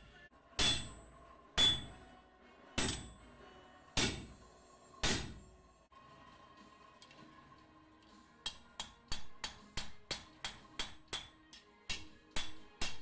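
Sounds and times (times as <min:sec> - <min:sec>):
hammer striking blade on anvil: 0:00.6 - 0:02.0, 0:02.8 - 0:03.2, 0:04.0 - 0:04.4, 0:05.0 - 0:05.4, 0:08.4 - 0:13.0.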